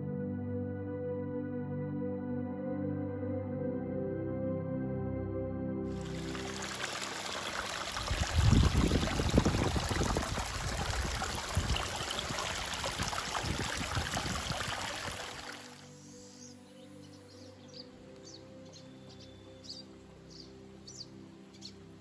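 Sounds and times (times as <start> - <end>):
stream trickling over rocks: 5.9 - 15.9
low rumbling: 7.4 - 15.1.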